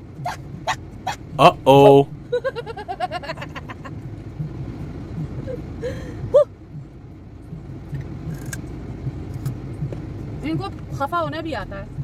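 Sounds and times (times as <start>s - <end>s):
short vocal sounds: 1.4s - 2.2s.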